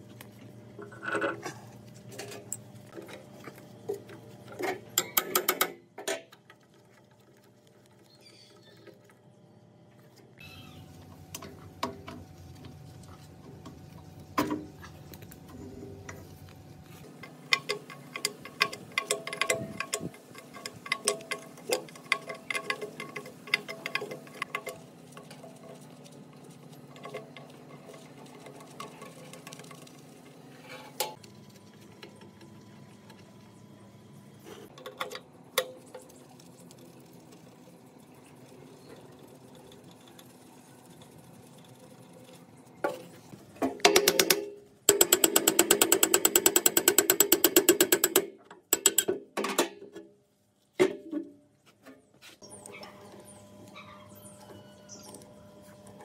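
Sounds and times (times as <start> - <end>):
small hard parts clicking: 17.1 - 25.5, 43.8 - 49.2.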